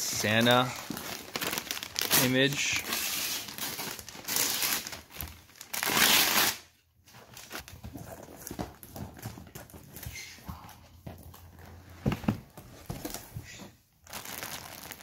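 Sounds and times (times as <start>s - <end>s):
paper crinkling and tearing: 0.7s - 6.6s.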